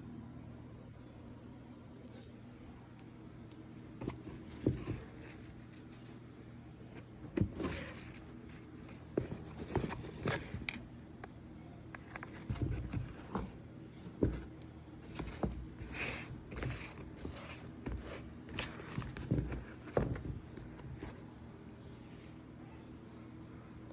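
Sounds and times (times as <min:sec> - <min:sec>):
sneakers rustling and scraping: 0:04.0 - 0:06.3, 0:12.3 - 0:21.3.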